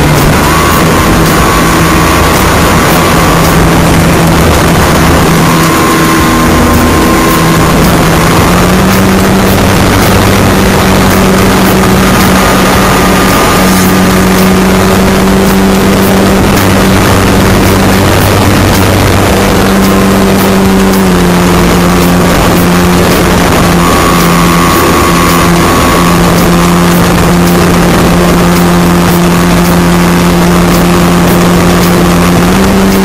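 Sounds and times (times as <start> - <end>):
model airplane engine: 0.0 - 33.0
wind rush: 0.0 - 33.0.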